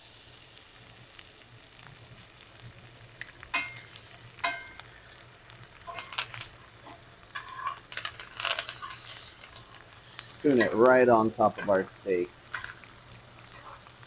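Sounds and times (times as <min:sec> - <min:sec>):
butter sizzling in skillet: 0:00.0 - 0:14.0
spoon clinking against pan: 0:03.5 - 0:04.8.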